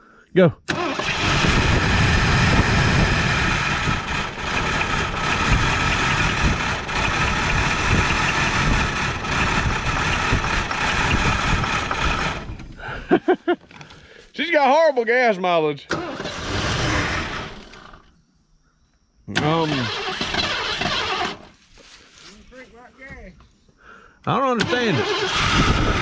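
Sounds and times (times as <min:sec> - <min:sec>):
car engine running and stalling: 0:00.7 - 0:13.0, 0:15.9 - 0:18.1, 0:19.4 - 0:21.5, 0:24.6 - 0:26.0.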